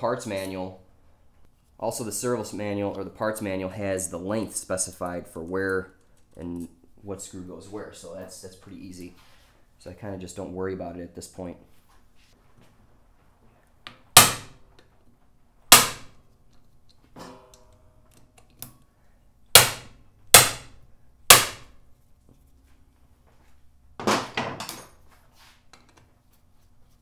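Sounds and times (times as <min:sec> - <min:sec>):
hammer striking metal impact driver: 0:14.2 - 0:14.5, 0:15.7 - 0:16.1, 0:19.5 - 0:21.7.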